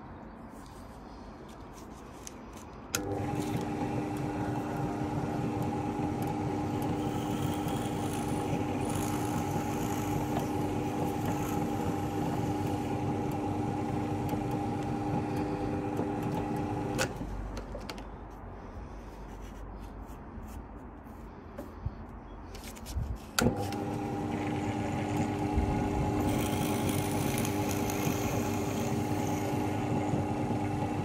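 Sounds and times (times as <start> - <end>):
pillar drill motor humming: 2.9 - 17.3, 23.4 - 31.0.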